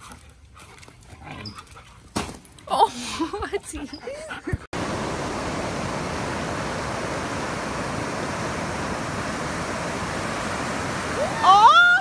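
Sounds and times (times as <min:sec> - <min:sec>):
ocean surf breaking: 0:04.8 - 0:12.0.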